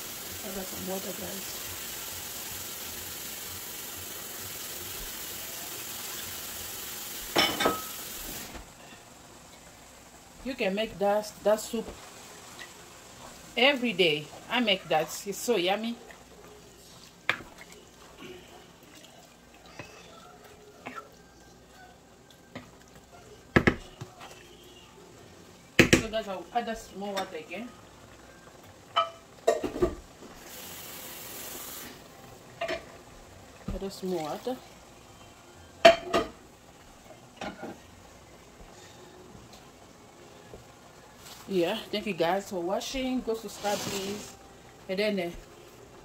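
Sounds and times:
pot of soup simmering: 27.7s - 41.4s.

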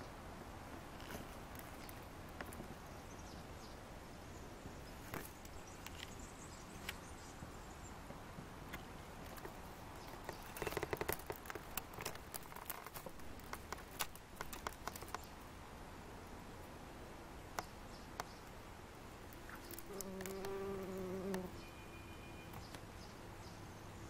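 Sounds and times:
ticks and crackles on dry soil: 0.8s - 3.0s, 4.9s - 7.1s, 8.6s - 15.5s, 19.3s - 21.6s, 22.5s - 22.9s
bumblebee wings buzzing: 19.5s - 21.6s.

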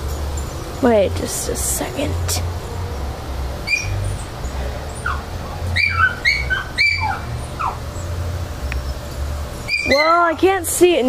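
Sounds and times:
steady low rumble: 0.0s - 11.0s
high-pitched chirping animal calls: 3.6s - 8.2s, 9.6s - 10.3s.

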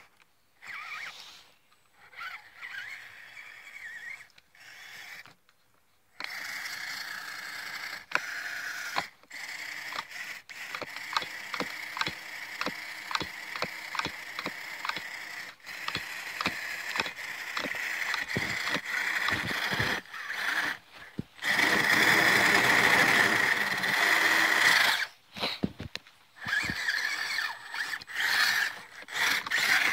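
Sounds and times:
electric motor and gears whining: 0.6s - 1.2s, 2.0s - 5.4s, 6.2s - 29.9s
regular clicking: 9.9s - 22.6s.

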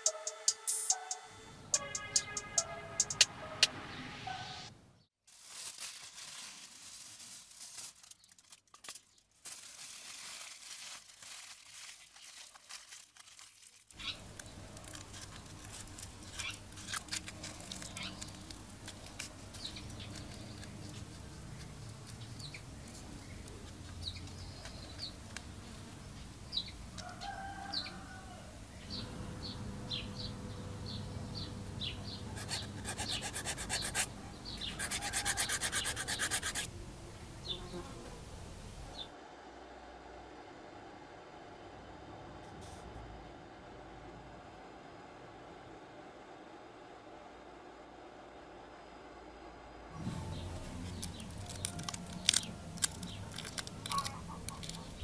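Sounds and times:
aluminium foil crinkling: 5.3s - 25.5s, 32.4s - 36.7s, 50.4s - 55.0s
fast rasping scratch: 14.0s - 21.8s, 32.3s - 36.7s
chickens clucking: 50.9s - 55.0s.

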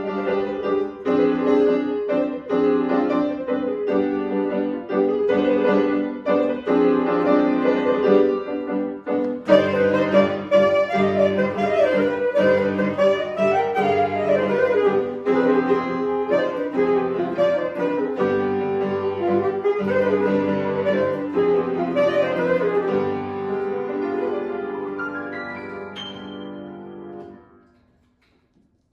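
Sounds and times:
piano chords: 0.0s - 28.0s
alto saxophone: 9.1s - 25.0s.

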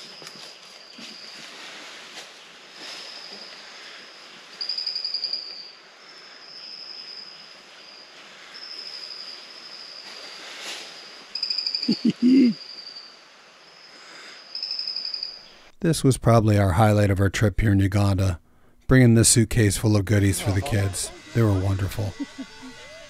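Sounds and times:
insects trilling: 2.8s - 15.7s, 20.3s - 23.0s.

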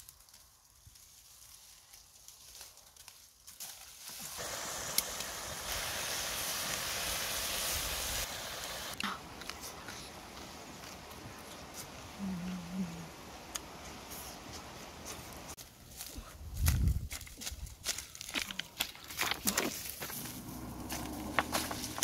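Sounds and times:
cabbage sizzling in a wok: 4.1s - 9.0s.

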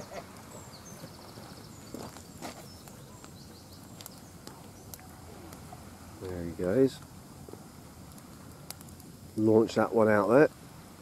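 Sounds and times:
small birds trilling: 0.0s - 5.6s.

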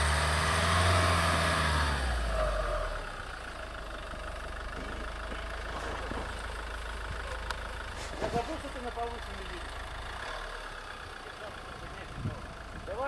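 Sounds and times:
car engine revving: 0.0s - 12.6s.

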